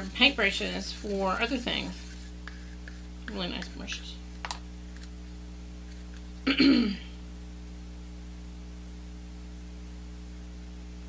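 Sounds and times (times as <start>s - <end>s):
low electrical hum: 0.0s - 11.0s
woman clearing her throat: 6.4s - 7.2s.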